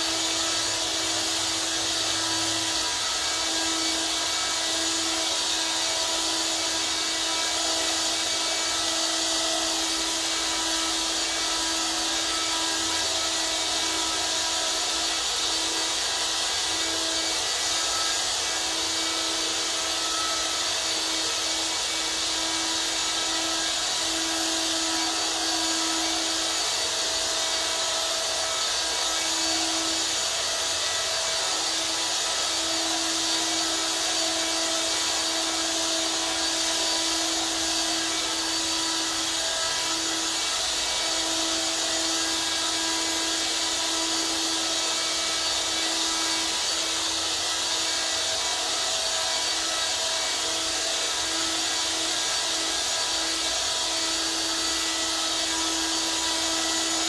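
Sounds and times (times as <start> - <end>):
vacuum cleaner running: 0.0 - 57.0.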